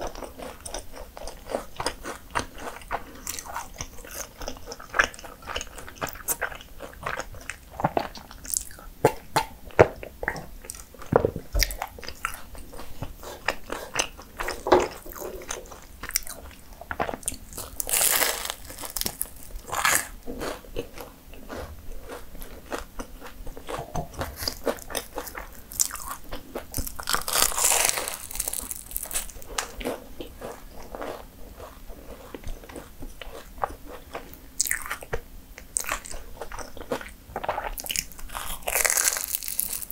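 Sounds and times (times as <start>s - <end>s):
chewing: 0.0s - 39.9s
pastry crackling and crunching: 13.5s - 35.0s, 37.7s - 39.9s.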